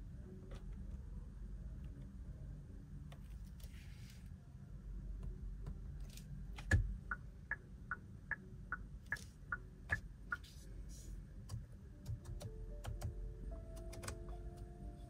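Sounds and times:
turn signal ticking: 6.6 - 10.5.

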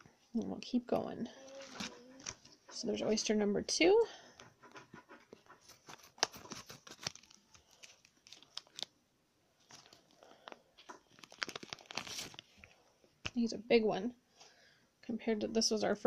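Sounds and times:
plastic packaging crinkling and tearing: 1.6 - 2.4, 5.7 - 9.0, 9.6 - 13.4.

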